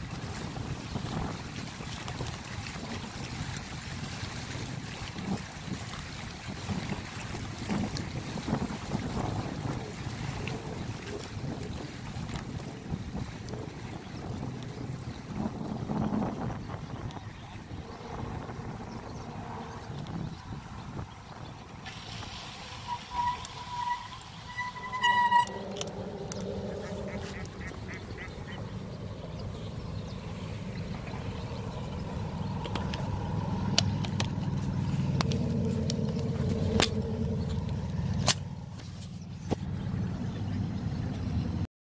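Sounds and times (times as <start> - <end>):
waterfowl calling: 21.9 - 29.5
low rumble: 22.2 - 41.6.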